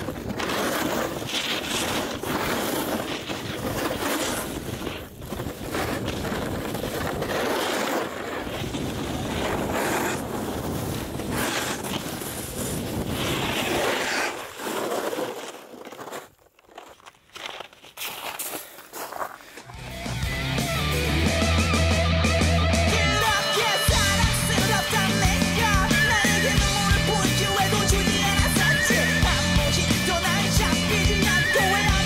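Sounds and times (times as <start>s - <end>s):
snowboard scraping over snow: 0.0s - 16.4s.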